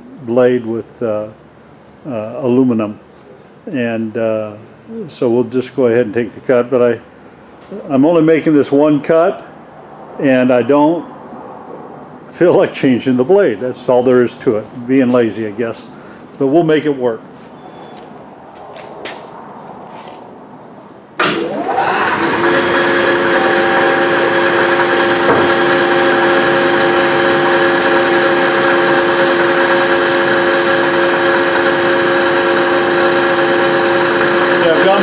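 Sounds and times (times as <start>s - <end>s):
bandsaw motor whining: 21.2s - 35.0s.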